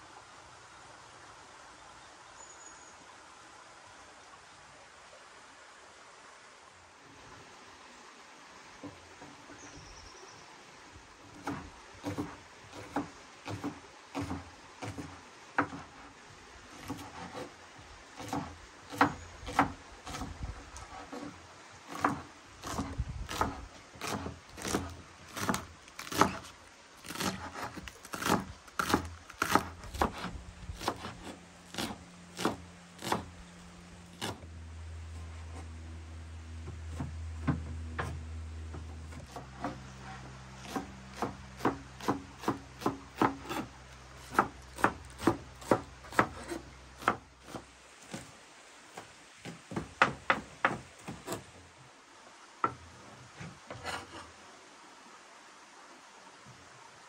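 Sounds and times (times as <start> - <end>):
knife chopping on wooden board: 11.4 - 15.9, 16.8 - 17.5, 18.2 - 21.3, 21.9 - 33.3, 40.6 - 48.2
low steady drone: 32.1 - 40.6.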